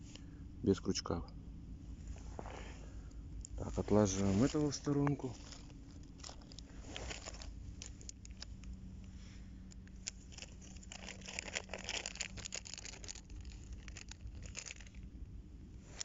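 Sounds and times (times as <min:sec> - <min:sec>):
plastic package crinkling: 0:03.8 - 0:08.8, 0:09.7 - 0:15.1.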